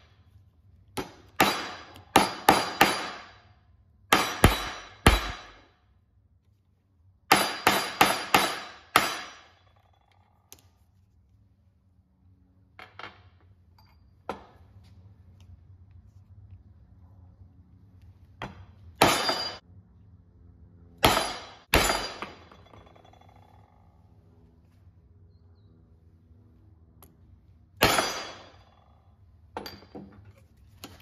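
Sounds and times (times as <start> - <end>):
hammer striking metal rivets: 0.9 - 3.5, 4.1 - 5.7, 7.3 - 10.6, 12.8 - 14.6, 18.4 - 19.6, 21.0 - 23.7, 27.8 - 28.8, 29.5 - 31.0.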